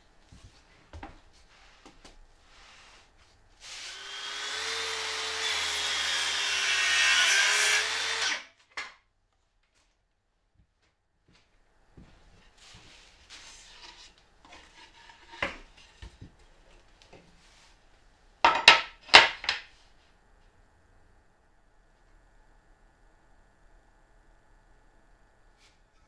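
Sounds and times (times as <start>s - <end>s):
boards rubbing and scraping: 13.4s - 16.1s.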